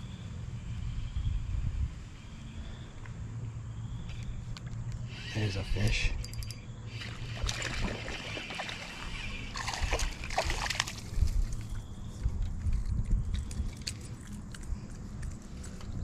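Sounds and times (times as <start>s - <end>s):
fish thrashing and splashing: 7.0s - 11.8s.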